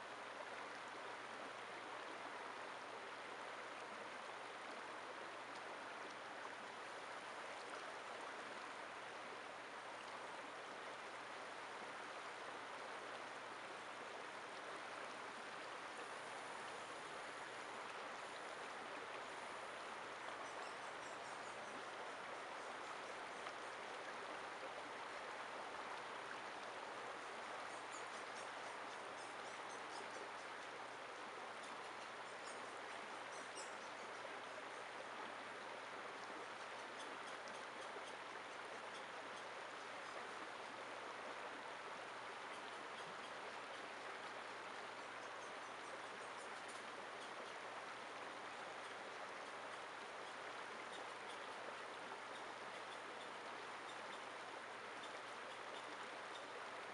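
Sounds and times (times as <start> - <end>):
river running over rocks: 0.0 - 32.4.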